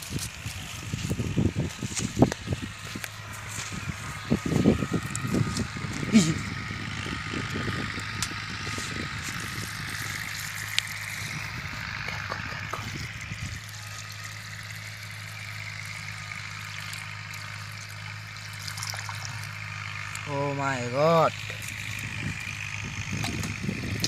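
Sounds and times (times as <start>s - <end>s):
water pouring onto grass: 9.2s - 11.8s, 12.8s - 20.3s.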